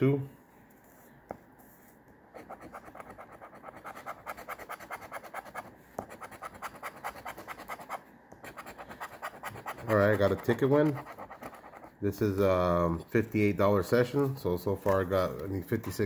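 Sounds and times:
coin scratching lottery ticket: 2.4s - 12.0s.

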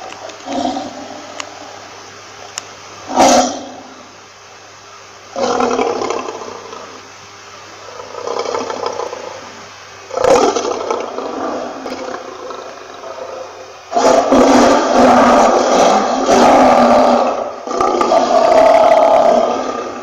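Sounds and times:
lion roaring: 0.4s - 1.4s, 5.3s - 7.0s, 7.8s - 20.0s.

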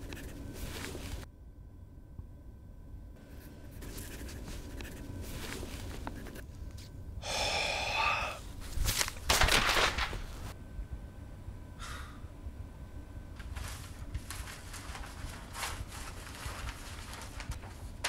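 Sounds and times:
man sighing heavily: 7.2s - 8.4s
breathy bursts of breath: 7.2s - 8.5s.

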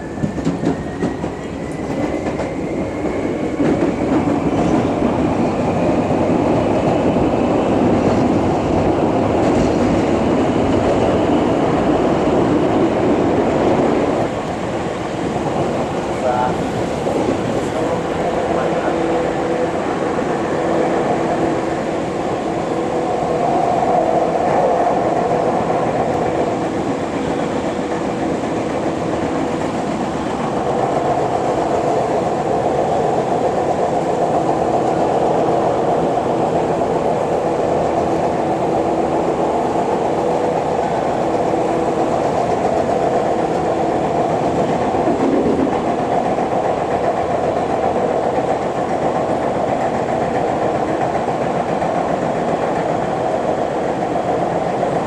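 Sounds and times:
train rumble and rail noise: 0.0s - 55.0s.

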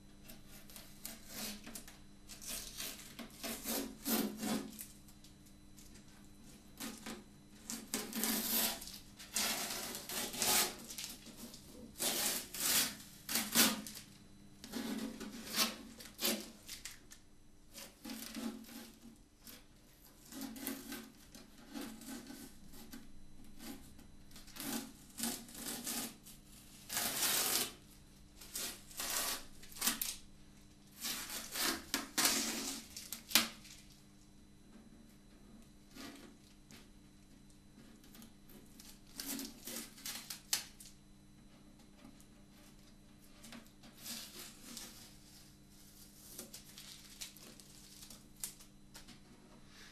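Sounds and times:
masking tape being peeled off: 26.9s - 27.7s, 28.5s - 30.2s.

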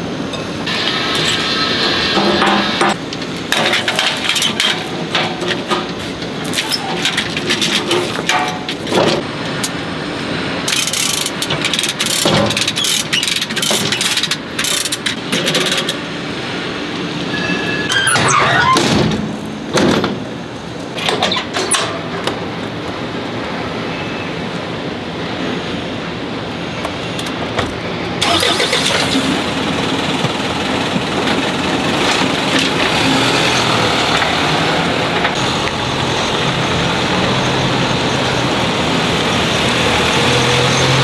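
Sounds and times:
lever hoist ratcheting clicks: 10.7s - 16.0s
wavering squeal: 17.3s - 18.8s.

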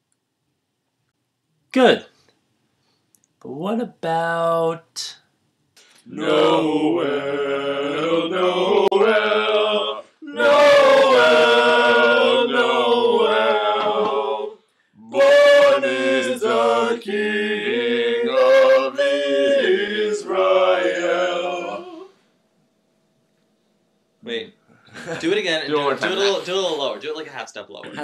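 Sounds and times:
group singing a cappella: 6.0s - 22.3s.

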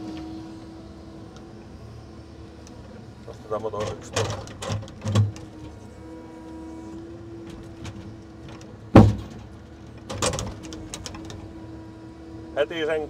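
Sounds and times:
hydraulic crane whine: 0.0s - 13.0s
timbers clattering: 3.5s - 5.8s, 7.4s - 11.5s.

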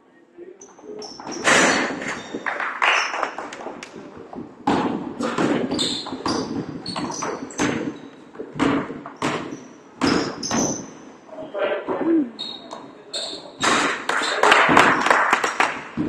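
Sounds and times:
sneakers squeaking on floor: 0.6s - 2.5s, 5.3s - 11.0s, 12.3s - 13.6s
basketball bouncing on wood: 4.3s - 10.9s.

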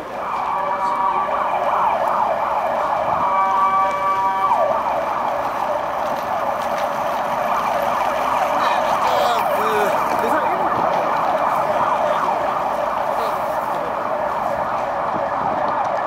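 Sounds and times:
emergency siren yelping: 0.0s - 16.0s.

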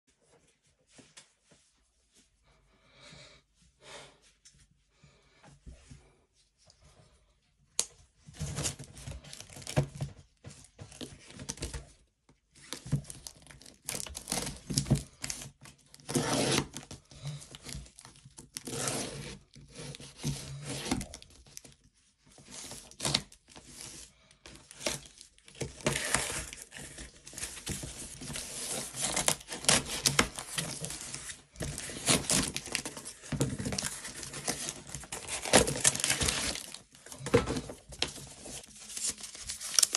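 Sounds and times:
tape and cardboard ripping: 16.0s - 16.8s, 24.8s - 37.7s.

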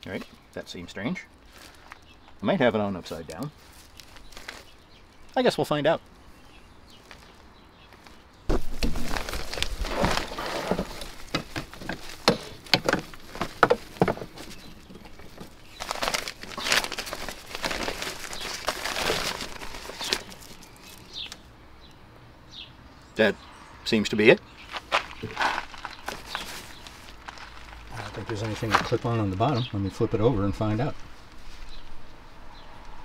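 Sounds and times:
mesh fabric rustling: 8.0s - 21.3s, 24.7s - 29.4s
sharp clicks and knocks: 10.7s - 15.6s.

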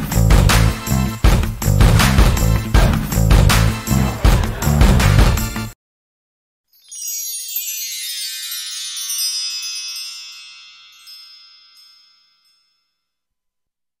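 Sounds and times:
shimmering chime: 6.7s - 13.2s.

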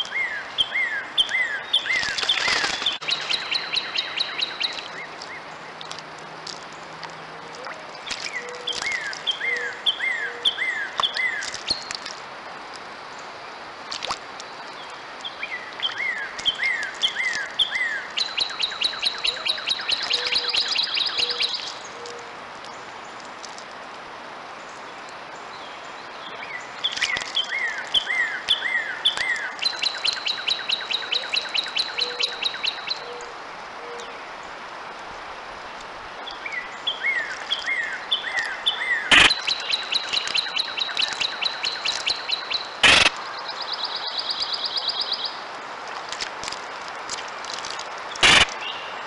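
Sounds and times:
songbird singing trills: 0.0s - 12.1s, 14.4s - 22.9s, 25.5s - 34.2s, 36.2s - 45.4s.

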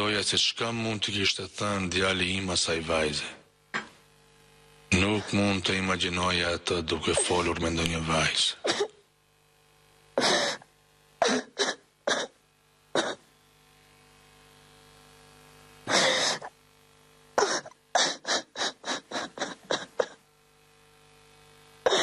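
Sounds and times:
faint steady hum: 0.0s - 22.0s
person coughing: 8.6s - 9.0s, 10.2s - 12.4s, 13.0s - 13.3s, 15.9s - 16.6s, 17.4s - 20.2s.

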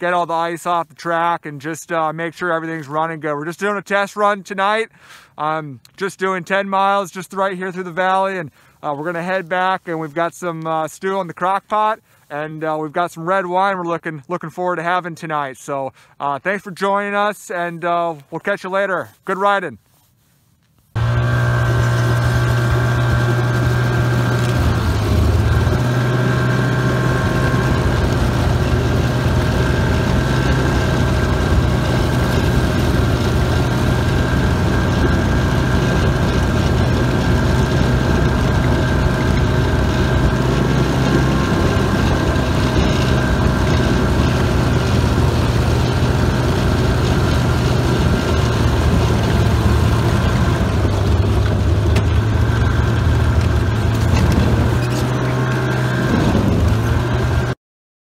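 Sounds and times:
snowmobile engine drone: 21.0s - 57.6s.

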